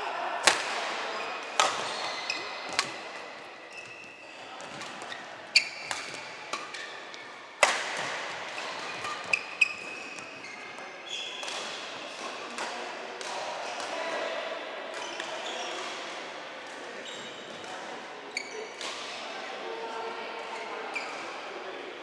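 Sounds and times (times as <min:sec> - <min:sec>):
racket hitting shuttlecock: 0:00.4 - 0:03.4, 0:04.6 - 0:10.5, 0:11.4 - 0:13.9
shoes squeaking on court: 0:01.2 - 0:07.2, 0:08.5 - 0:11.5, 0:18.3 - 0:18.8.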